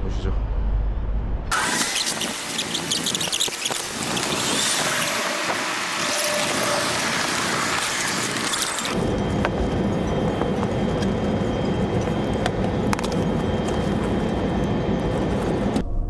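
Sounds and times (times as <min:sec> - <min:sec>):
faint squeal: 0:01.6 - 0:09.3
train carriage rumble: 0:09.0 - 0:15.8.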